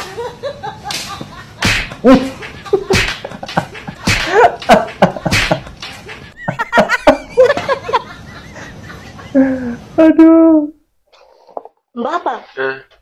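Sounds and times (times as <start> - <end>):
man laughing hard: 2.0 - 9.7.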